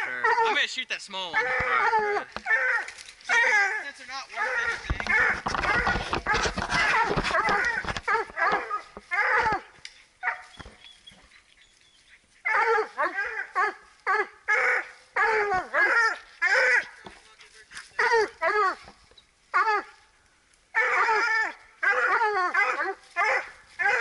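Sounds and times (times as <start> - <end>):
dogs barking: 0.0 - 0.6, 1.3 - 10.8, 12.4 - 17.1, 17.9 - 18.8, 20.7 - 24.0.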